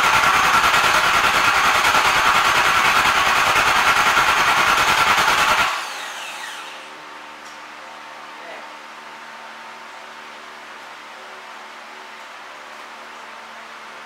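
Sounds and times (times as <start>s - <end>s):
starter motor cranking engine: 0.0s - 6.9s.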